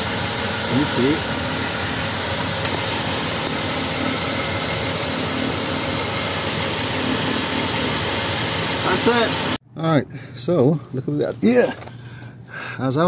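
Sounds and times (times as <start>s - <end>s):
car engine idling: 0.0s - 9.6s.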